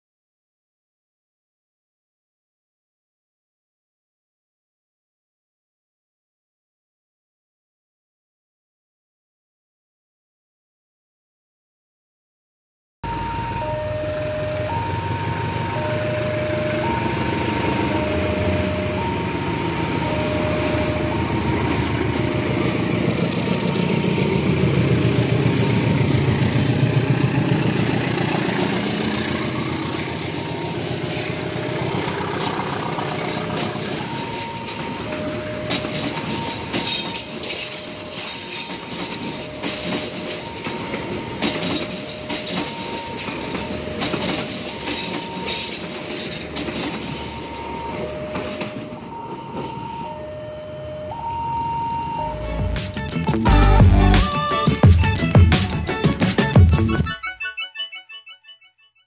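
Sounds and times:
crossing alarm two-tone chime: 0:13.0 - 0:24.8, 0:29.2 - 0:31.8, 0:33.2 - 0:55.8, 0:57.0 - 0:59.0
diesel locomotive engine: 0:13.0 - 0:51.3, 0:52.0 - 0:57.2
wheels clacking over rail joints: 0:20.6 - 0:50.0.

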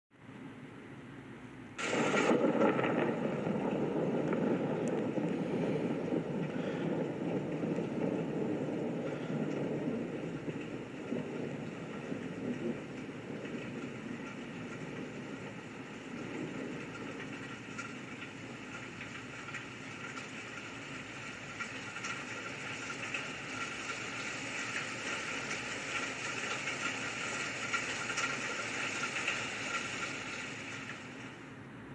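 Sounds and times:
rain rushing hiss: 0:01.6 - 0:31.9.

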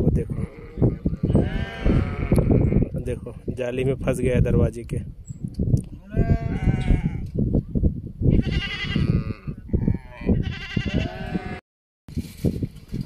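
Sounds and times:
goats bleating: 0:00.3 - 0:02.9, 0:06.0 - 0:07.2, 0:08.3 - 0:11.6.

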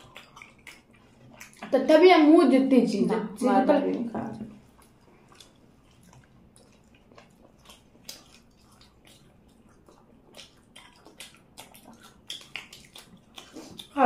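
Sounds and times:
mouth smacking and chewing: 0:00.0 - 0:02.0, 0:03.9 - 0:14.0.

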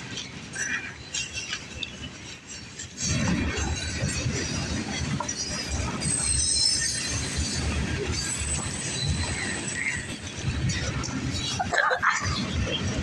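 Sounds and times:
freight train rumbling past: 0:00.0 - 0:13.0
steel wheel squeal: 0:04.0 - 0:10.8.

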